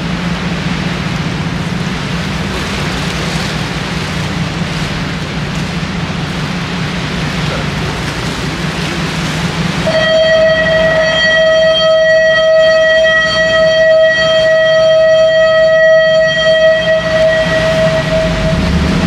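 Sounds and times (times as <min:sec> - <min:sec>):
boat engine running: 0:00.0 - 0:19.0
water: 0:00.0 - 0:19.0
long steady tone: 0:05.8 - 0:19.0.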